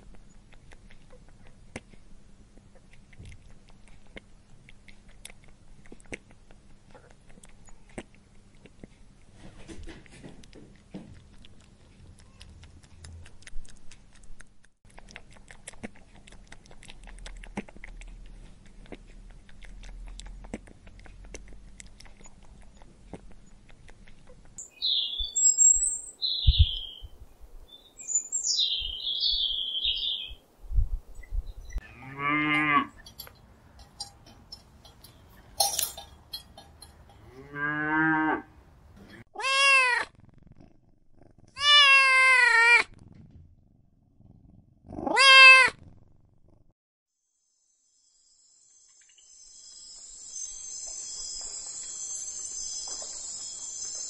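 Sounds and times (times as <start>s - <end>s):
rabbits nibbling and crunching: 0.0s - 30.0s, 32.6s - 37.4s, 49.8s - 54.0s
high bird chirps: 24.6s - 27.1s, 27.7s - 30.4s, 48.9s - 54.0s.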